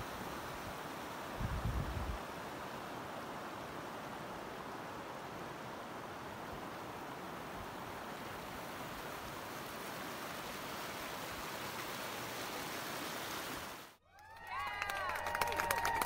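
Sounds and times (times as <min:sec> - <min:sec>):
stream flowing over stones: 0:00.0 - 0:14.0.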